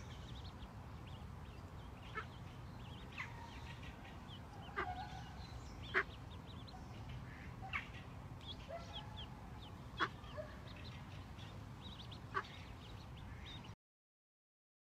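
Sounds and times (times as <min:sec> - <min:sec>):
ducklings peeping: 0:00.0 - 0:13.8
duck calling: 0:10.0 - 0:10.4.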